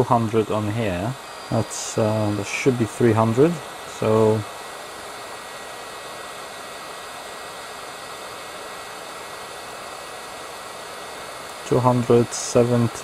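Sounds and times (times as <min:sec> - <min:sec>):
hot air blower rushing: 0:00.0 - 0:13.0.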